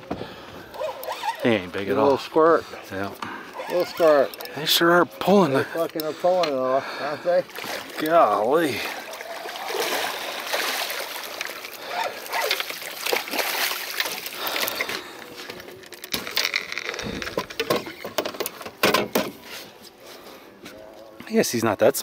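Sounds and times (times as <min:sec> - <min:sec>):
fish splashing in a net: 0:07.4 - 0:15.2
knocks and clatter on deck: 0:17.0 - 0:19.4.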